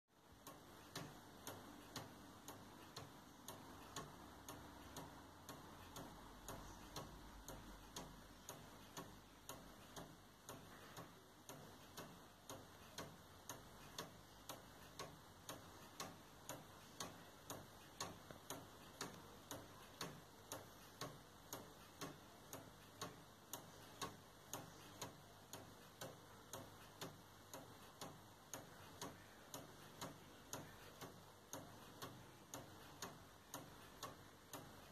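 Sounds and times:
wooden clock ticking: 0.2 - 34.9.

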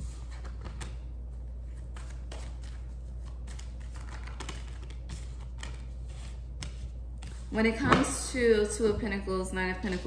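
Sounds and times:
cards shuffled by hand: 1.7 - 7.5.

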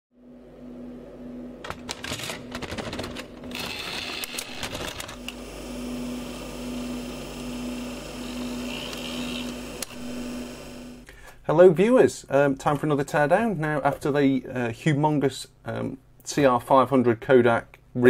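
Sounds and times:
cassette clicks and clatter: 1.6 - 5.2
tape mechanism whirring: 1.6 - 11.1.

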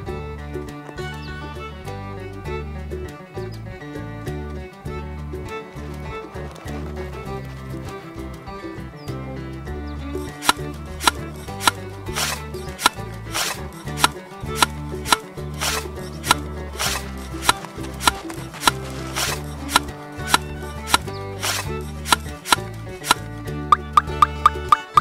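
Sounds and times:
percussive clicks: 10.2 - 25.0.

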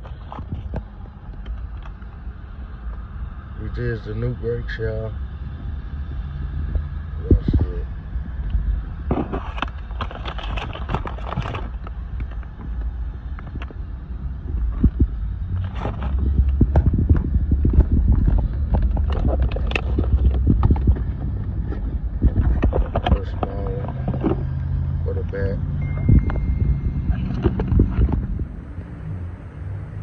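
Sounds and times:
low rumble: 0.0 - 30.0
packaging crinkling and rustling: 9.4 - 12.4.

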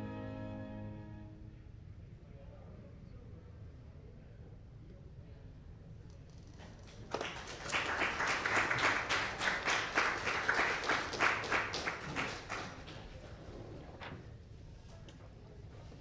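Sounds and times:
audience applauding: 6.9 - 13.3.

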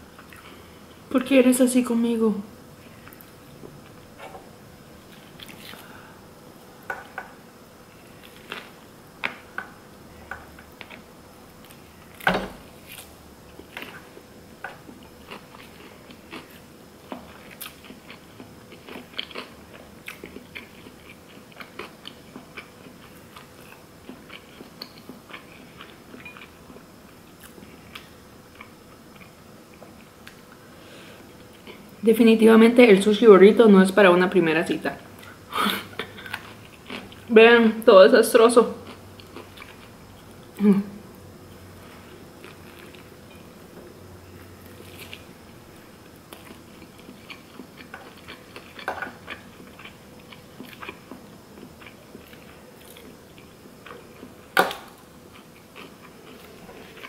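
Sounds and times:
chewing and biting: 46.3 - 57.0.

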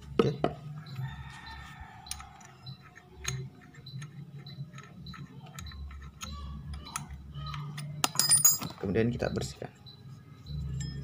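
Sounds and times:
metal clicks and ticks: 0.9 - 8.8.

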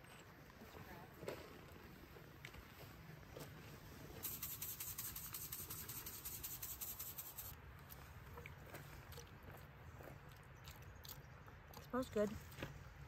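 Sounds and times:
seasoning shaker rattling: 4.2 - 7.5.

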